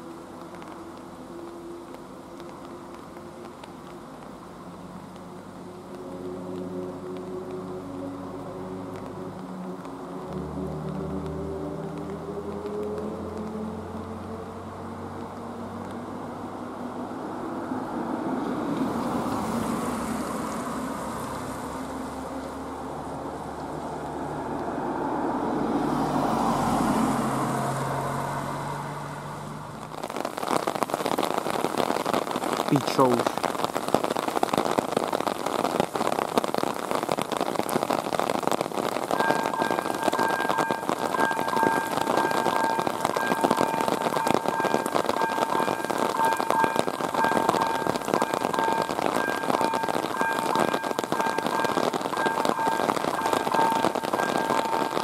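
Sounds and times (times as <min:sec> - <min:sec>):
passing car traffic: 0:00.0 - 0:55.0
rain falling: 0:00.0 - 0:55.0
raindrops hitting microphone: 0:00.0 - 0:55.0
car engine approaching: 0:01.9 - 0:30.8
electronic warning bell: 0:39.2 - 0:55.0.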